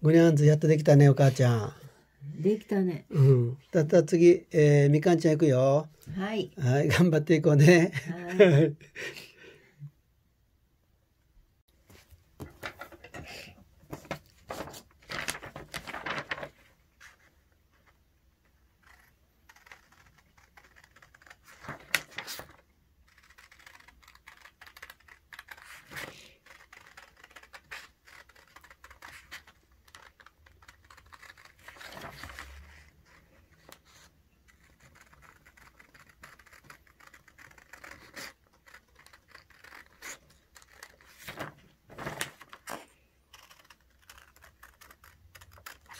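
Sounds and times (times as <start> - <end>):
paper rustling: 11.8 - 18.0, 18.8 - 45.9
scissors snipping paper: 18.8 - 41.5, 42.3 - 45.9.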